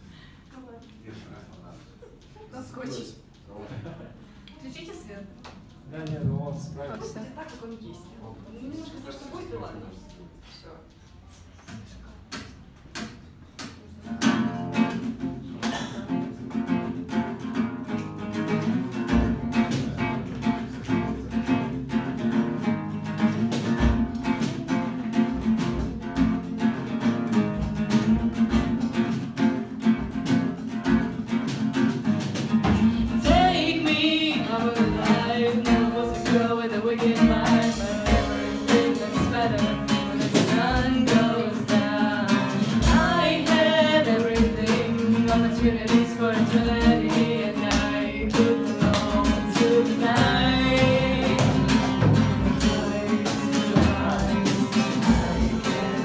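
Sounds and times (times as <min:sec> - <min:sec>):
acoustic guitar strumming: 0:14.0 - 0:56.0
woman singing: 0:33.0 - 0:56.0.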